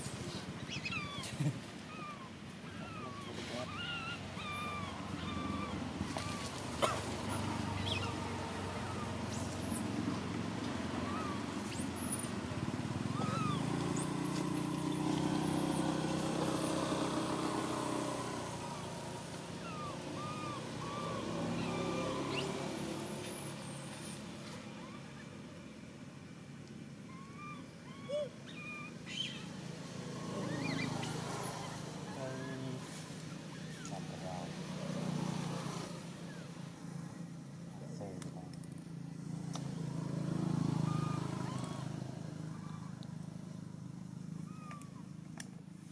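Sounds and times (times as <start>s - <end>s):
short chirping calls: 0.6s - 6.5s, 13.1s - 24.2s, 27.1s - 29.6s, 30.2s - 32.1s
vehicle engine passing by: 2.8s - 25.6s, 28.5s - 45.0s.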